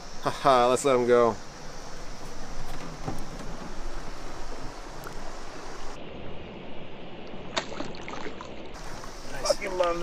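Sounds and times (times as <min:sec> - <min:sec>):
outdoor noise hiss: 0:00.0 - 0:10.0
fish splashing into river: 0:07.5 - 0:09.1.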